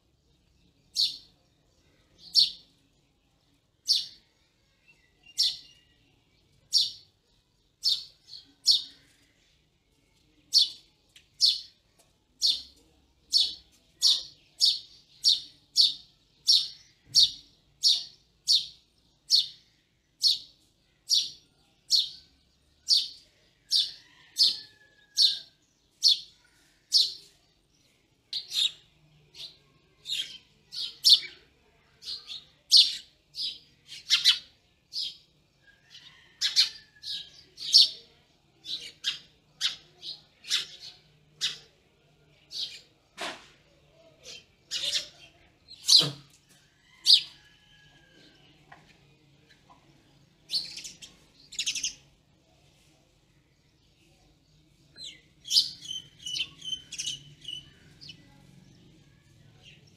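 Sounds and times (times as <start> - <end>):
sparrow chirping: 0.1 - 2.9, 3.7 - 9.2, 10.4 - 41.8, 42.4 - 43.0, 44.2 - 46.3, 50.4 - 52.2, 54.9 - 58.8.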